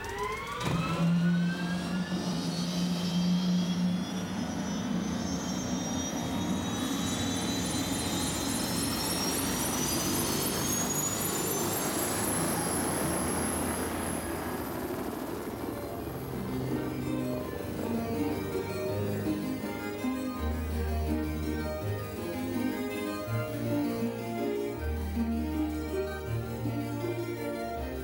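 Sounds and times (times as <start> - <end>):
aircraft turbine engine winding up: 0.0 - 28.0
steady high tone: 0.1 - 28.0
faint rapid pulsing: 11.1 - 24.2.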